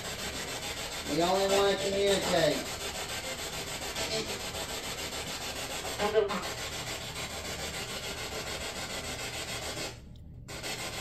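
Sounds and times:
snatch of radio broadcast: 1.1s - 2.7s.

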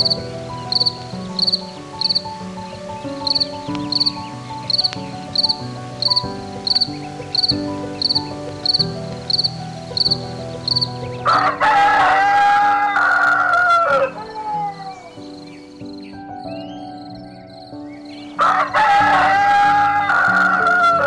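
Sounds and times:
background music: 0.0s - 21.0s
rooster crowing: 11.2s - 15.1s, 18.4s - 21.0s.

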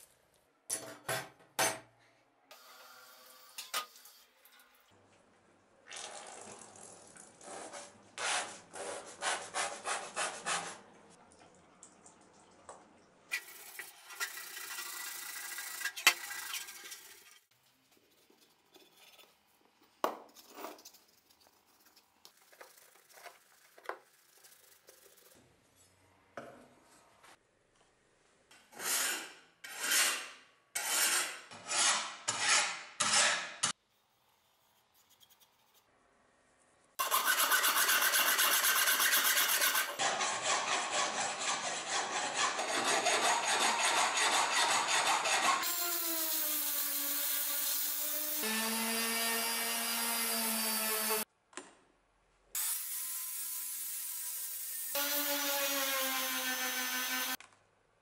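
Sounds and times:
file rasping on steel blade: 28.8s - 33.5s, 37.0s - 45.7s.

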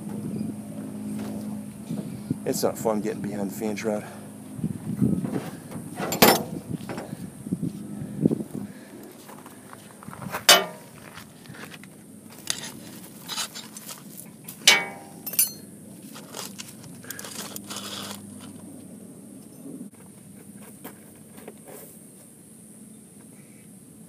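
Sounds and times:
sharp knocks and clinks: 6.0s - 7.1s, 10.5s - 10.9s, 14.6s - 15.7s
footsteps on gravel: 6.6s - 18.6s.

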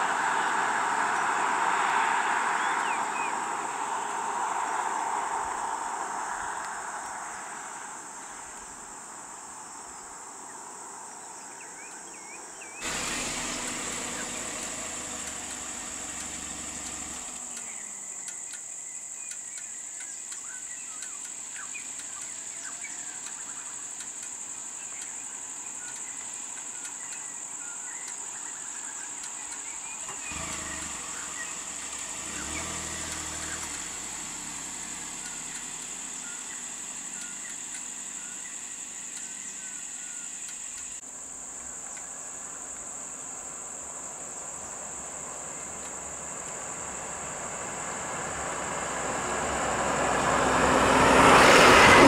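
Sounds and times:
insect chorus drone: 0.0s - 52.0s
short insect chirps: 11.8s - 41.0s
low vehicle engine rumble: 12.8s - 19.6s, 20.4s - 52.0s.

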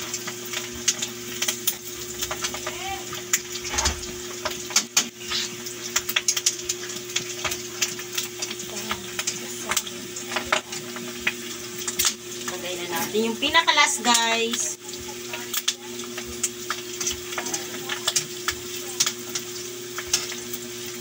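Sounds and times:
deep-frying sizzle and crackle: 0.0s - 21.0s.

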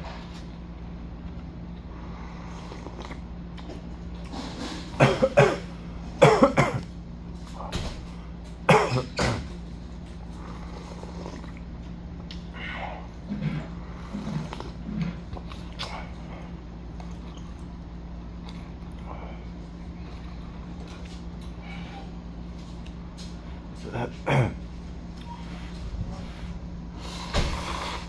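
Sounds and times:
man coughing: 5.0s - 6.9s, 8.7s - 9.5s, 23.9s - 24.6s.

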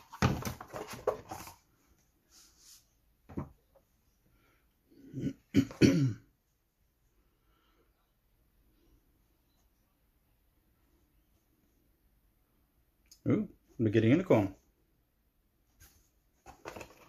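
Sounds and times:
cardboard sheets rustling: 0.0s - 3.4s, 15.7s - 17.0s
man coughing: 5.1s - 6.3s.

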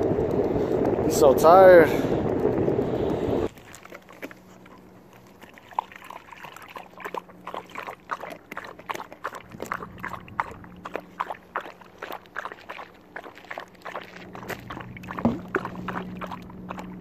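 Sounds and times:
puppy lapping water: 3.4s - 17.0s.

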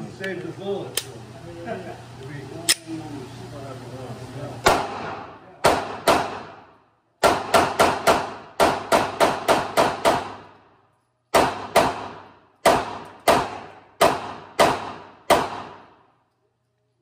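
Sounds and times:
pistol shots with room echo: 4.6s - 16.2s.

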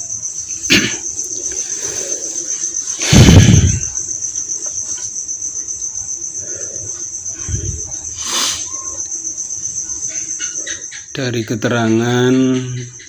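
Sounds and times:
cricket trilling: 0.0s - 13.0s
short hiss: 8.2s - 8.7s.

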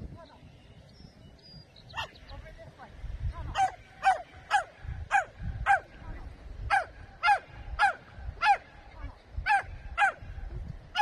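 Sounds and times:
dog barking: 3.6s - 5.9s, 6.7s - 8.7s, 9.5s - 10.2s.

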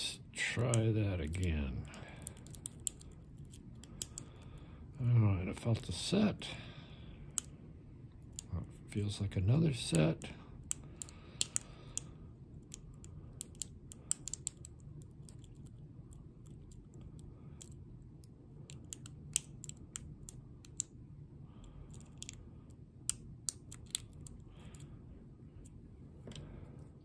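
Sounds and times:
lock pick metallic clicks: 2.2s - 4.5s, 10.6s - 17.0s, 18.7s - 20.9s, 23.1s - 24.8s.

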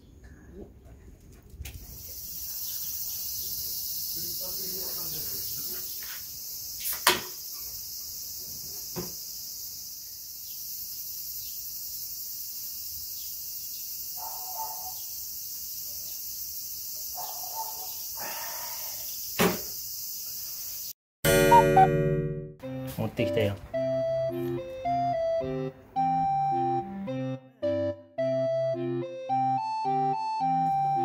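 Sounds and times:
insects chirring: 1.8s - 21.0s.

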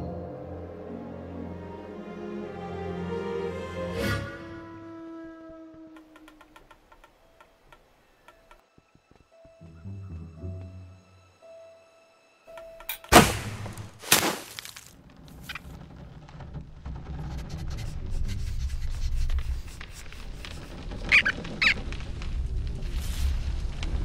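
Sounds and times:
short high squeaks: 20.3s - 21.8s
low rumble: 20.8s - 24.0s.

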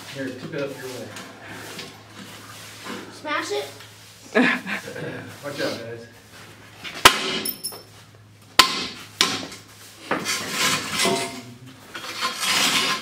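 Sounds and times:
toilet scraping on floor: 10.0s - 13.0s.

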